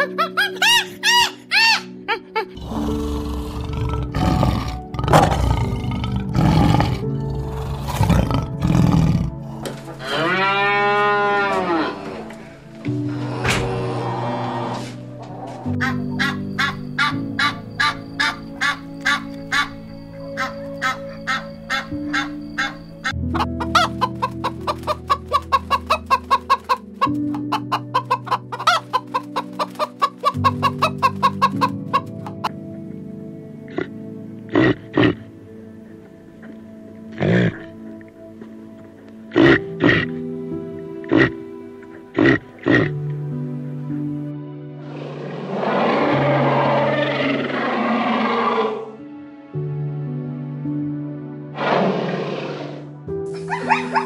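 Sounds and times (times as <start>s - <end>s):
chicken squawk: 0.0s - 1.9s, 14.7s - 19.8s, 20.4s - 32.5s, 53.4s - 54.0s
background music: 0.0s - 54.0s
lion roaring and grunting: 2.6s - 12.5s, 13.1s - 15.7s, 44.8s - 49.0s, 51.6s - 52.9s
cow mooing: 9.9s - 15.6s
chickens clucking: 15.5s - 19.8s, 20.4s - 32.6s.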